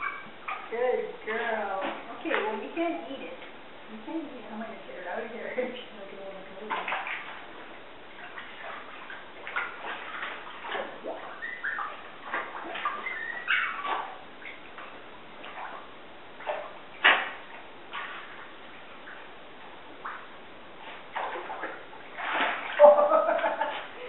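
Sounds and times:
bathwater splashing and dripping: 0:06.3 - 0:24.0
dog whimpering: 0:12.9 - 0:14.2.

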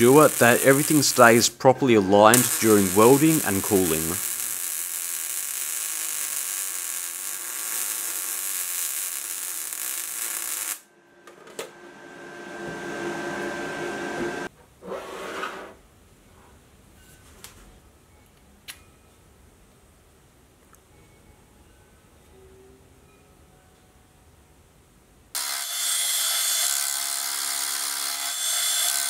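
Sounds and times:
welding arc crackling and hissing: 0:00.0 - 0:10.8.

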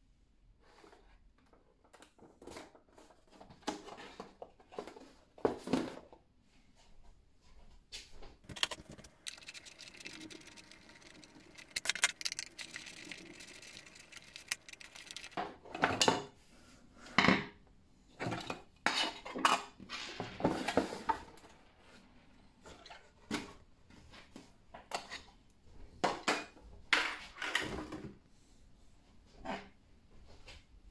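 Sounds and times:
screwdriver clicks and scrapes: 0:08.5 - 0:15.4.

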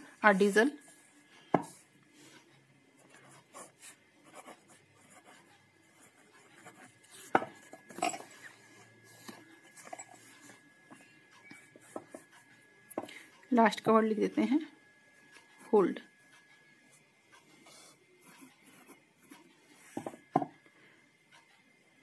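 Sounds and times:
pen scratching on paper: 0:03.0 - 0:10.7, 0:17.4 - 0:20.2.

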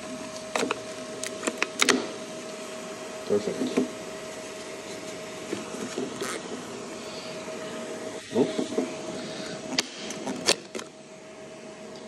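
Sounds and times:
steady hum: 0:00.0 - 0:12.0
plastic scraping on plastic: 0:04.9 - 0:06.6.

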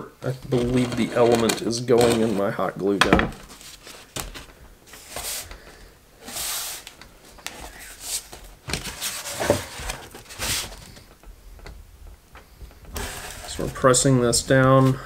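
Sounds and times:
foam board swishing and scraping: 0:06.2 - 0:06.9, 0:07.6 - 0:10.8.

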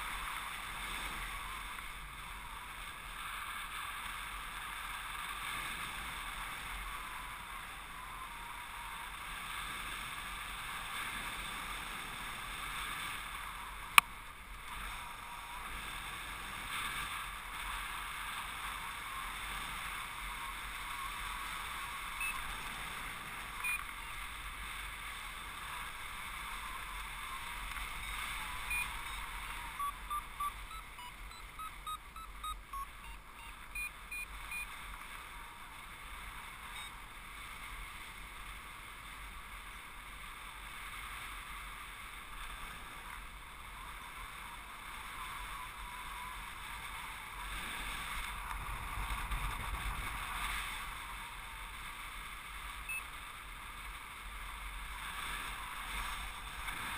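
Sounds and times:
short high beeps: 0:22.2 - 0:22.4, 0:23.6 - 0:24.2, 0:28.0 - 0:34.7
wind noise on microphone: 0:47.0 - 0:51.9.

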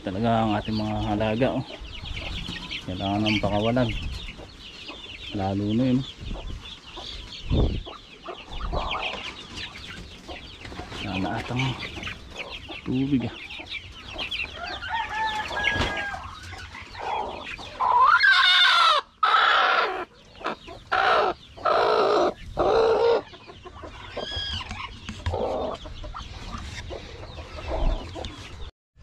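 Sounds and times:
chick peeps: 0:00.0 - 0:28.7
chickens clucking: 0:00.0 - 0:28.7
chickens squawking: 0:00.0 - 0:28.7
rooster crowing: 0:14.6 - 0:16.4.

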